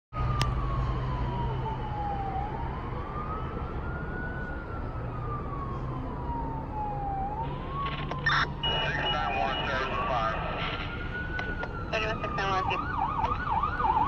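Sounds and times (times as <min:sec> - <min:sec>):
siren wailing: 0:00.2 - 0:14.0.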